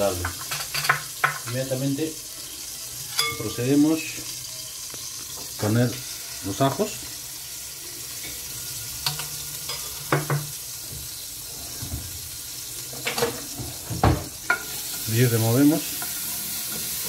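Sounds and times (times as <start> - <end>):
garlic sizzling in hot oil: 0.0 - 17.0
utensils clinking and knocking: 0.1 - 1.7, 3.1 - 3.6.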